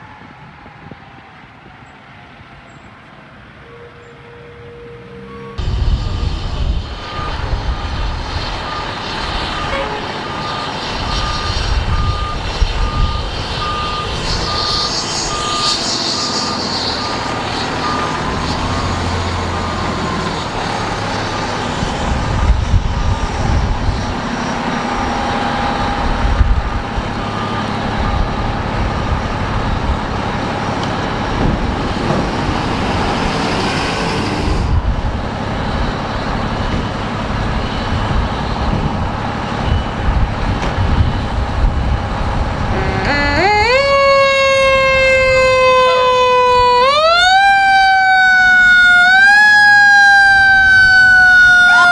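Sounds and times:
diesel engine running: 5.4 - 46.9
backup alarm beeping: 8.6 - 20.2, 42.7 - 44.1.

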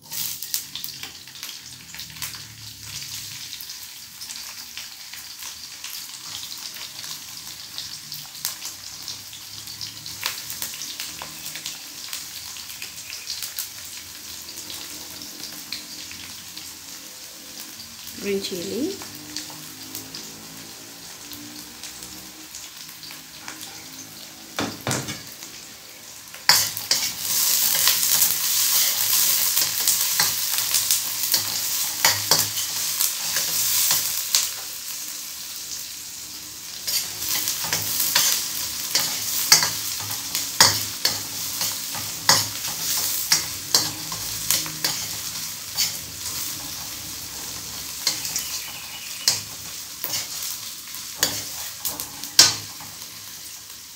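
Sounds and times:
onions frying in hot oil: 0.0 - 53.9
spatula scraping a pan: 26.5 - 34.7, 36.7 - 53.5.

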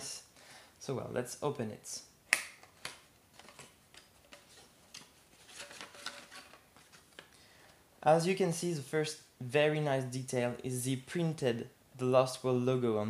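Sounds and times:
plastic case sliding and rustling: 5.4 - 7.1.

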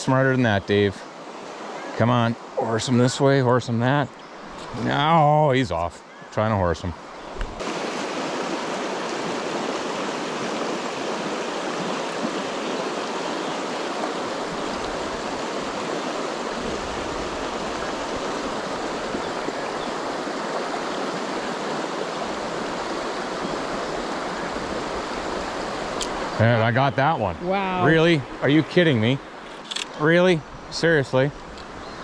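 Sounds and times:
stream rushing over stones: 6.9 - 30.3.

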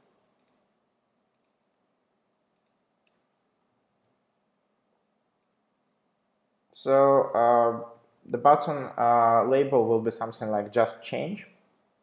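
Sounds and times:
computer mouse and keyboard clicks: 0.4 - 0.6, 1.3 - 1.6, 2.5 - 4.2.

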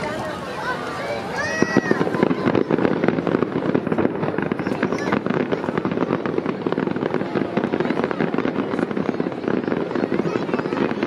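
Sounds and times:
fireworks bursting and crackling: 0.0 - 11.0.

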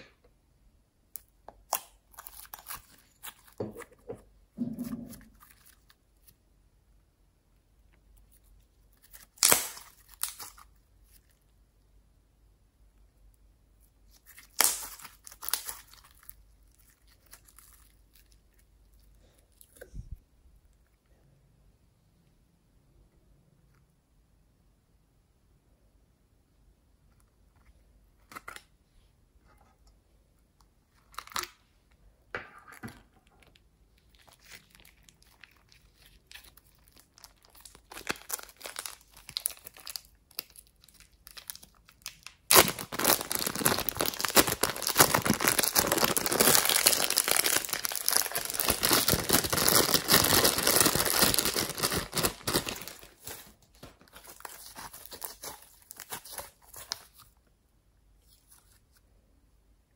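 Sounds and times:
plastic bag crinkling: 34.1 - 57.2.

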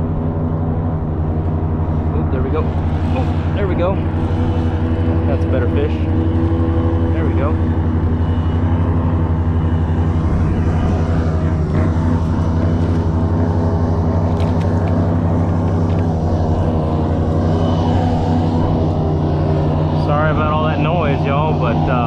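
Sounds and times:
airboat engine and propeller running: 0.0 - 22.0.

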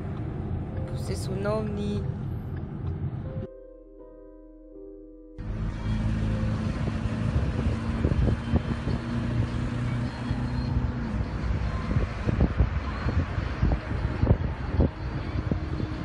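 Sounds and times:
wind buffeting microphone: 6.4 - 16.0.

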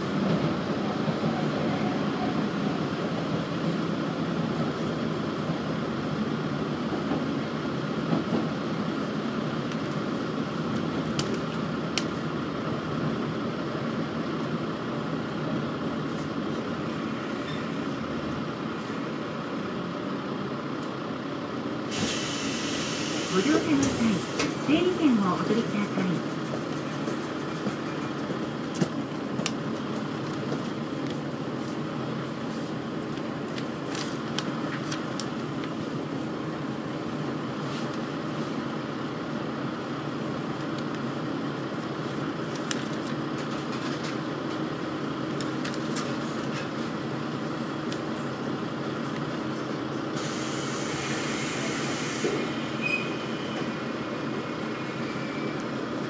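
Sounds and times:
diesel engine idling: 2.4 - 56.0
air hiss: 50.2 - 52.5.

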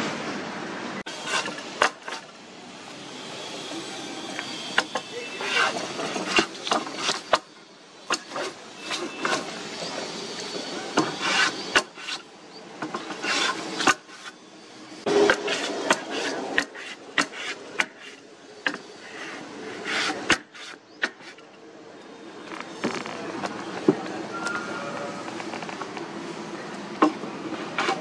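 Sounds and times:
hand plane shaving wood: 4.8 - 7.5, 11.0 - 12.3, 13.0 - 14.4, 15.1 - 18.2, 19.0 - 21.4.

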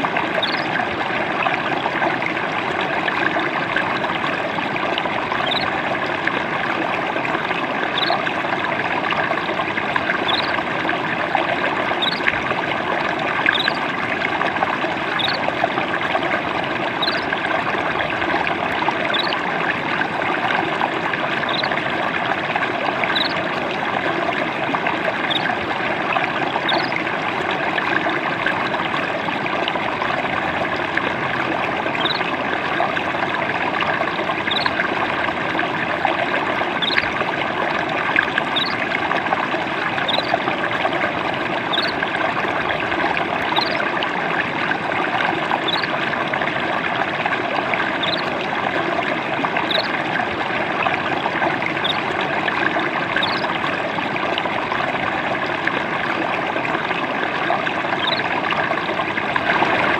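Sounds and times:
stream babbling: 0.0 - 59.9
bird chirping: 0.4 - 0.7, 5.4 - 5.7, 8.0 - 8.2, 10.3 - 10.6, 12.0 - 12.3, 13.5 - 13.8, 15.2 - 15.4, 17.0 - 17.2, 19.1 - 19.4, 23.1 - 23.4, 34.5 - 34.7, 36.8 - 37.1, 38.6 - 38.8, 45.7 - 45.9, 48.0 - 48.2, 49.7 - 49.9, 53.2 - 53.4, 58.0 - 58.2.

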